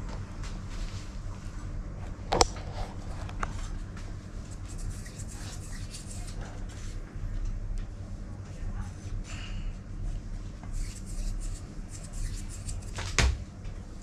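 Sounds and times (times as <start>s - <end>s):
steady low hum: 0.0s - 14.0s
fingers rubbing food in flour: 4.4s - 6.9s, 10.7s - 13.0s.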